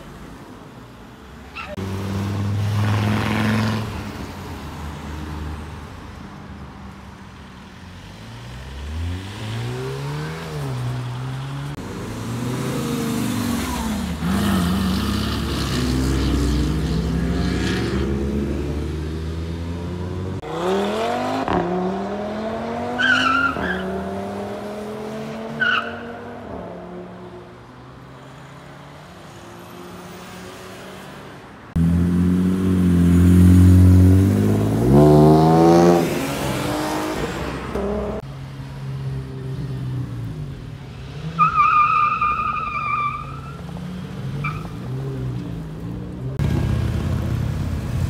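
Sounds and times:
cars accelerating past: 0:01.7 - 0:05.7, 0:08.1 - 0:38.2.

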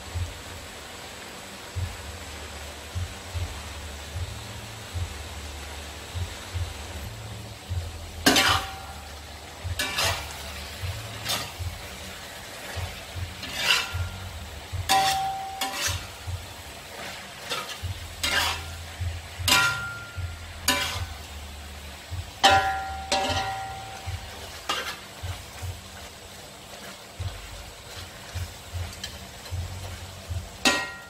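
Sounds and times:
food sizzling: 0:00.0 - 0:31.0
metal spatula scraping a wok: 0:08.2 - 0:31.0.

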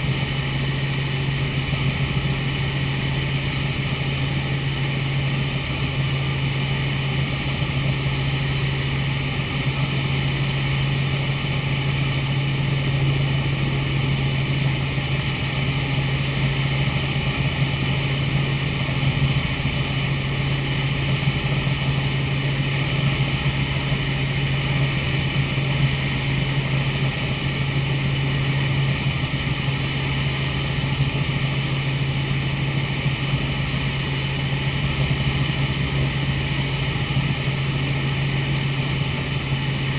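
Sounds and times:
helicopter rotors and engine drone: 0:00.0 - 0:39.9.

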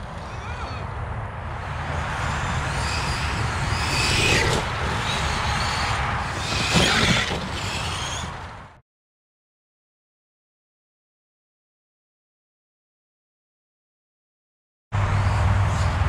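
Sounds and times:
electric motors whining: 0:00.0 - 0:08.8.

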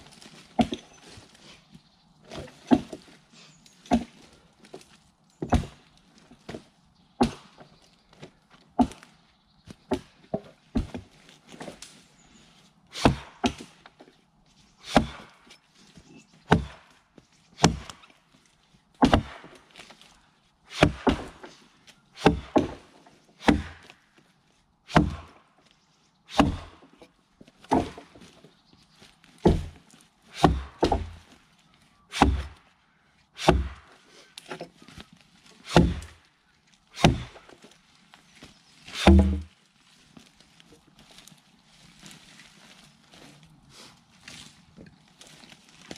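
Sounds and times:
axe chopping a log: 0:00.4 - 0:00.8, 0:02.3 - 0:03.0, 0:03.9 - 0:04.2, 0:05.4 - 0:05.8, 0:07.2 - 0:07.6, 0:08.8 - 0:09.1, 0:09.8 - 0:11.0, 0:12.9 - 0:13.8, 0:14.8 - 0:15.5, 0:16.4 - 0:16.9, 0:17.6 - 0:18.0, 0:19.0 - 0:19.9, 0:20.7 - 0:21.5, 0:22.2 - 0:24.0, 0:24.9 - 0:25.4, 0:26.3 - 0:26.9, 0:27.6 - 0:28.3, 0:29.4 - 0:31.3, 0:32.1 - 0:32.6, 0:33.4 - 0:34.7, 0:35.6 - 0:36.3, 0:36.9 - 0:37.6, 0:38.9 - 0:39.5.

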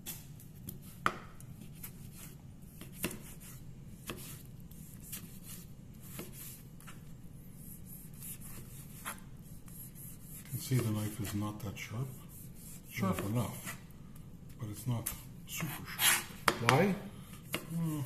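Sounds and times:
knife tapping on cutting board: 0:16.4 - 0:16.8.

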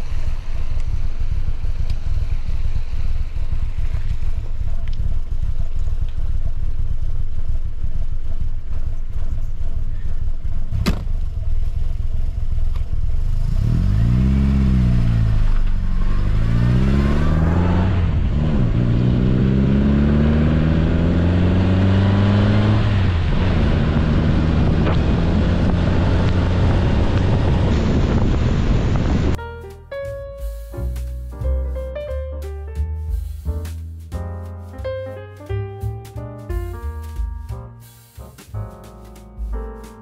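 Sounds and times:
car engine revving: 0:00.0 - 0:29.4
wind and road noise: 0:00.0 - 0:29.4.

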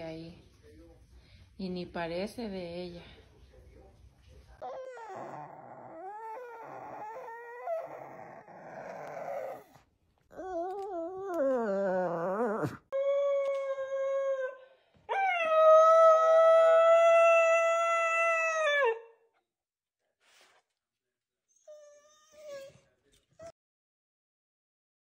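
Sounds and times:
dog whining: 0:04.6 - 0:13.8, 0:21.5 - 0:23.5
dog howling: 0:04.6 - 0:19.0.

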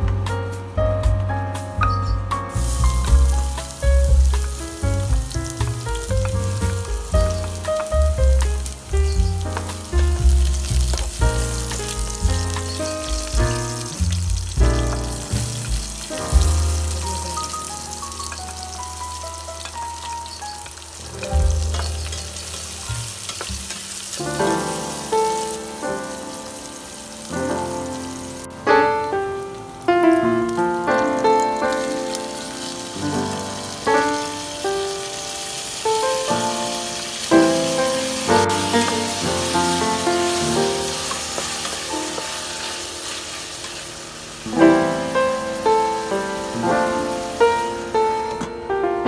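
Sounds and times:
background music with bass: 0:00.0 - 0:25.8, 0:37.3 - 0:42.7
garlic sizzling in hot oil: 0:01.6 - 0:48.5.

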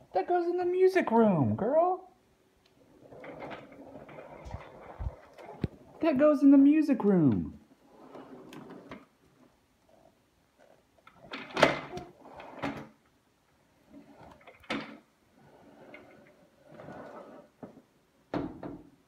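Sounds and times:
office chair rolling on hardwood floor: 0:02.7 - 0:06.2, 0:07.3 - 0:13.0, 0:13.7 - 0:17.9.

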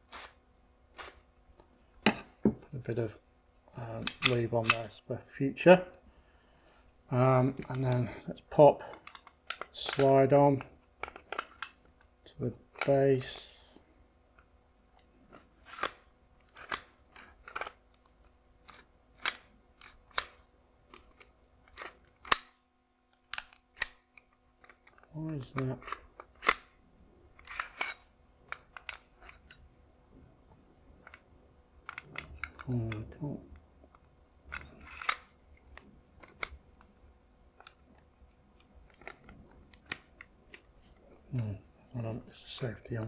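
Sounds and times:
pistol parts clicking: 0:15.7 - 0:26.7, 0:38.6 - 0:40.6.

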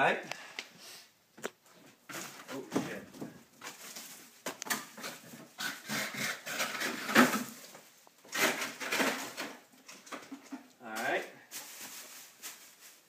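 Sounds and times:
scraping and rustling of freezer frost: 0:03.6 - 0:13.0.

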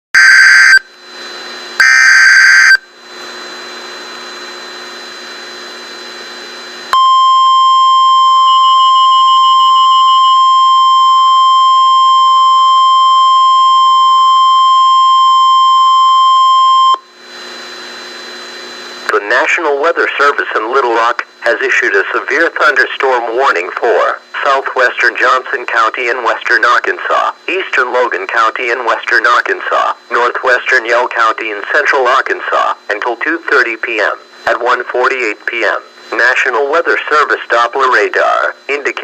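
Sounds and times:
steady warning alarm tone: 0:00.2 - 0:00.9, 0:01.8 - 0:02.9, 0:07.0 - 0:17.1
data tone bursts: 0:01.8 - 0:02.8, 0:07.0 - 0:13.7
radio hiss: 0:18.6 - 0:39.0.

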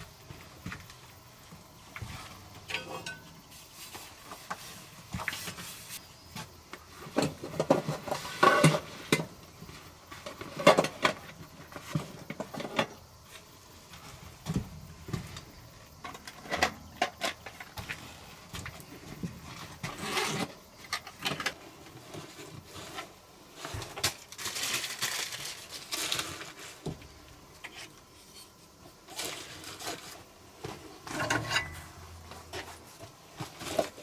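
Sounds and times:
metal items clinking: 0:02.7 - 0:03.4, 0:31.1 - 0:32.2.

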